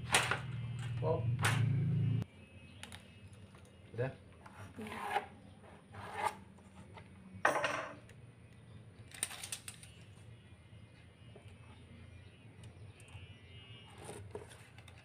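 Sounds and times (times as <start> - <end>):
tool scraping on wood: 4.4 - 7.0.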